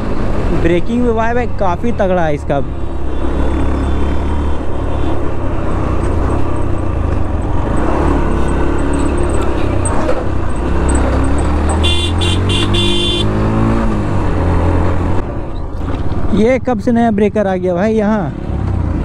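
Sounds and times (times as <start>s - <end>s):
motorcycle engine at speed: 3.1s - 15.3s
vehicle horn honking: 11.8s - 13.4s.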